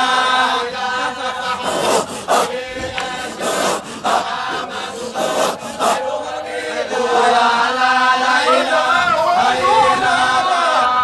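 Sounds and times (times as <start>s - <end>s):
rhythmic raspy breathy strokes: 0.0s - 8.0s
group chanting: 0.0s - 11.0s.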